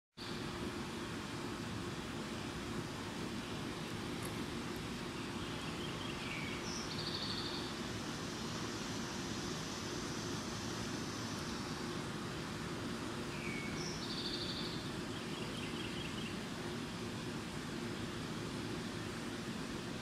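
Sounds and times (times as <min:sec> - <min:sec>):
bird calls: 0:05.2 - 0:07.8, 0:13.3 - 0:16.4.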